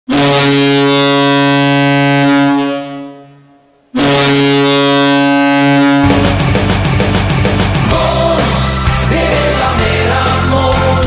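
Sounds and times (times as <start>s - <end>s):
deep goal horn blasts: 0.1s - 6.8s.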